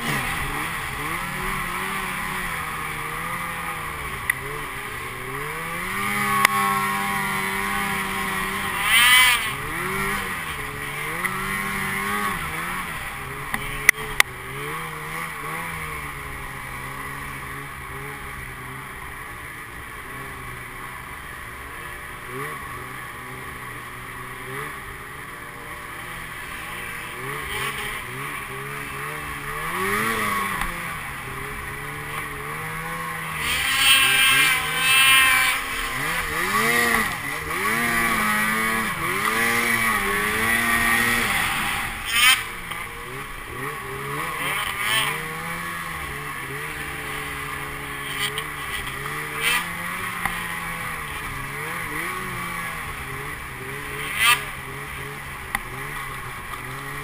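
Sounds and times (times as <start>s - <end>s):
snowmobile engine revving: 0.0s - 57.0s
track hissing in snow: 25.7s - 42.7s.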